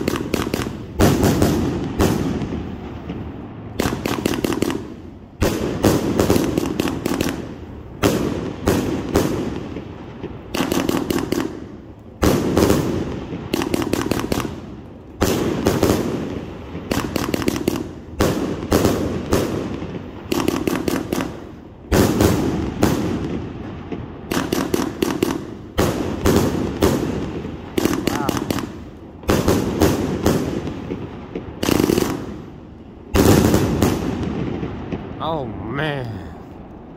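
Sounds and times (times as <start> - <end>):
firework launch reports and bursts: 0.0 - 36.9.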